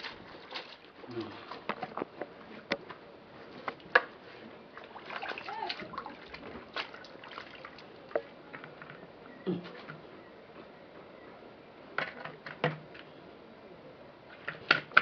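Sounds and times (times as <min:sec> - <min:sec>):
water splashing in a plastic basin: 0:00.0 - 0:02.0, 0:03.6 - 0:08.4.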